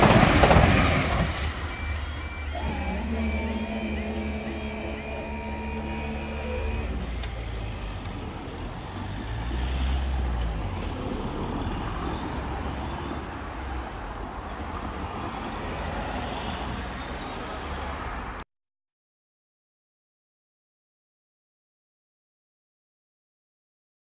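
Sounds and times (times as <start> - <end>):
road traffic rumbling: 0.0 - 18.4
squeaky crossing alarm tone: 0.1 - 17.9.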